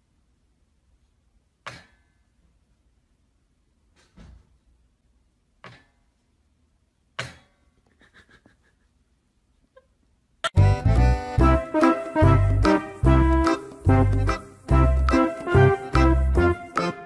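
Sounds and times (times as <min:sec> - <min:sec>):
loud music: 0:10.5 - 0:17.0.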